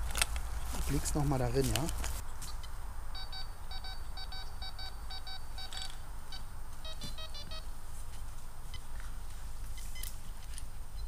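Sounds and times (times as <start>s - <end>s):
metal detector beeps: 3.2s - 7.7s.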